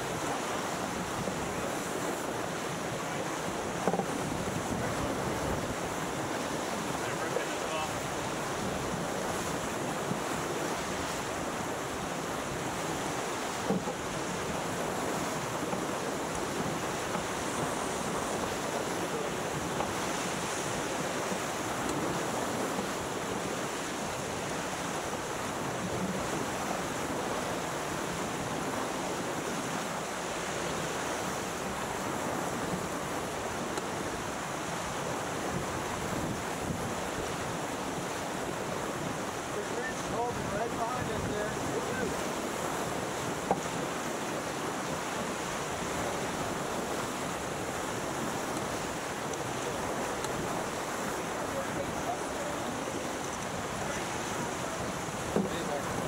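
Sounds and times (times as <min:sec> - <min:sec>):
water rushing along a hull: 0:00.0 - 0:56.0
wind buffeting the microphone: 0:00.0 - 0:56.0.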